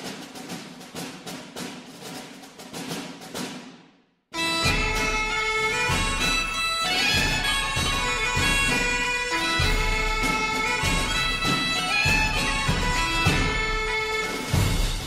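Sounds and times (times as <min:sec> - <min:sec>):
drum beats: 0:00.0 - 0:15.0
bagpipe-like melody: 0:04.4 - 0:15.0.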